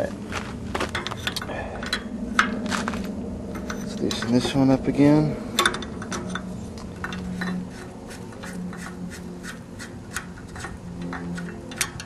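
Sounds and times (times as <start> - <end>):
steady low hum: 0.0 - 12.0
wrench clicking and scraping: 5.5 - 12.0.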